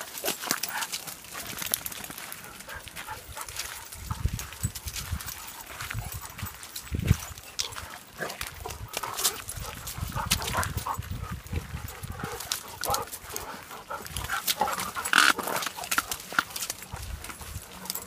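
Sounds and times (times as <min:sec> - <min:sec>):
footsteps on wet gravel: 0:00.0 - 0:18.0.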